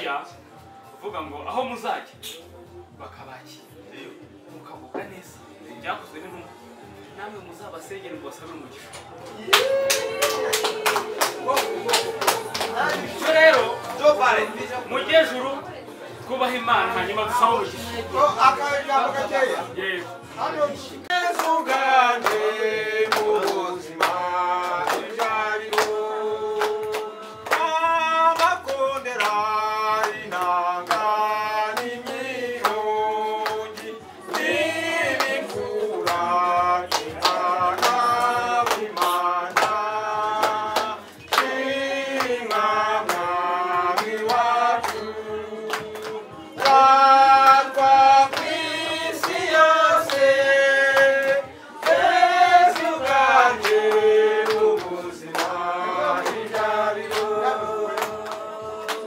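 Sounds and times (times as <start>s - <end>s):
hand-clapping: 8.9s - 13.7s, 21.3s - 32.8s, 33.4s - 36.3s, 36.9s - 59.0s
men singing together: 16.8s - 59.0s.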